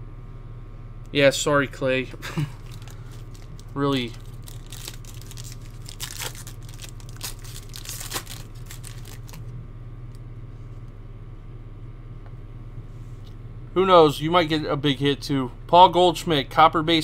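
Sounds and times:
foil wrapper crinkling: 0:02.4 - 0:09.5.

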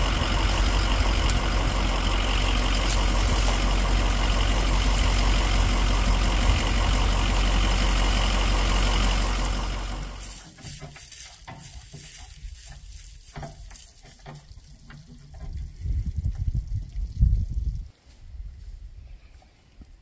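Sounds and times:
tyres crackling over dry leaves: 0:00.0 - 0:15.8
diesel pickup engine rumbling: 0:00.0 - 0:16.1.

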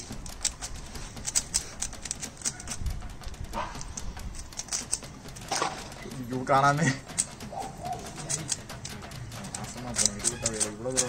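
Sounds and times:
plastic puzzle cube clicks: 0:00.0 - 0:02.9, 0:08.1 - 0:11.0.

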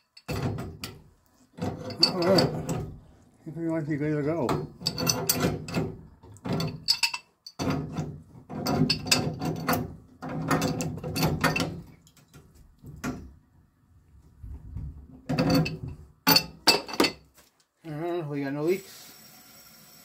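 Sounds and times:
pipe wrench grating and creaking: 0:00.0 - 0:03.1, 0:04.1 - 0:11.9, 0:15.3 - 0:16.6.

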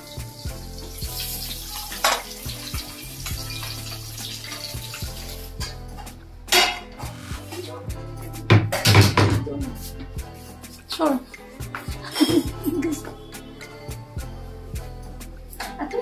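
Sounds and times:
frying hiss: 0:00.0 - 0:05.8.

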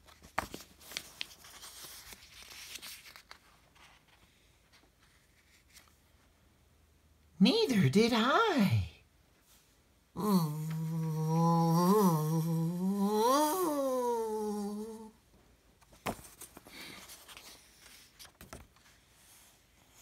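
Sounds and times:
book pages rustling and flipping: 0:00.0 - 0:06.4, 0:15.8 - 0:20.0
man humming: 0:10.2 - 0:15.2.

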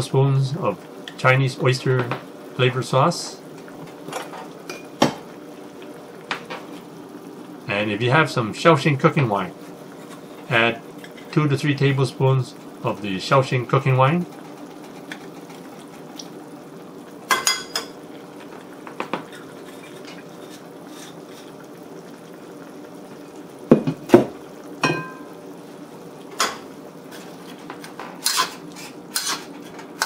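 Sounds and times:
broth simmering in a wok: 0:00.0 - 0:30.0.

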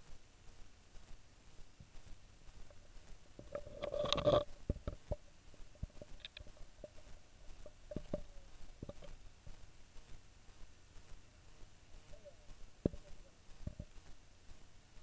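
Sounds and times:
camera handling scraping and rustling: 0:03.5 - 0:04.5.

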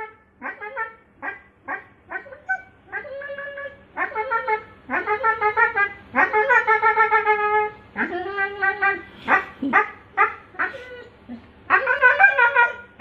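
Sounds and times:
husky whining howls and yelps: 0:10.2 - 0:13.0.

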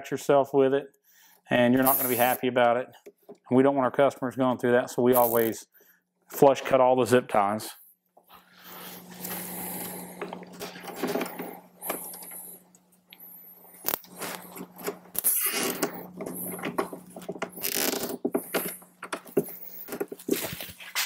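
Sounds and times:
steady low hum: 0:08.4 - 0:21.0
zip ties scraping and clicking: 0:13.8 - 0:16.0, 0:17.5 - 0:18.8.

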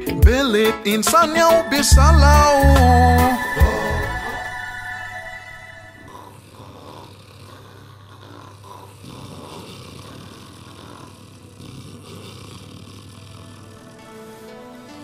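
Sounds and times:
music: 0:00.0 - 0:06.1, 0:13.0 - 0:15.0
man snoring: 0:06.0 - 0:15.0.

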